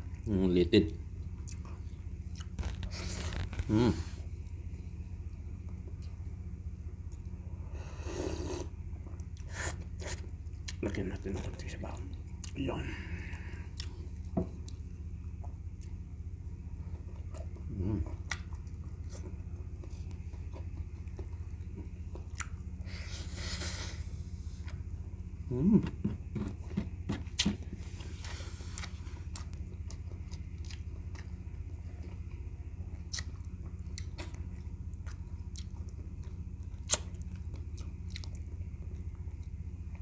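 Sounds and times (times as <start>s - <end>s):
steady low hum: 0.0s - 40.0s
close chewing: 27.4s - 40.0s.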